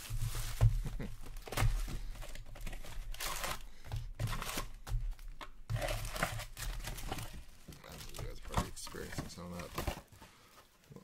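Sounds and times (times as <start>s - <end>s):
foil wrappers crinkling: 0.0s - 11.0s.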